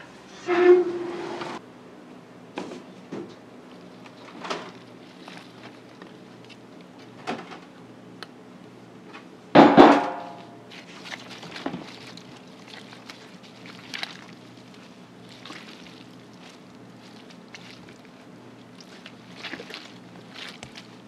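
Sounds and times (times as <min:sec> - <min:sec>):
steady low hum: 0:01.6 - 0:21.0.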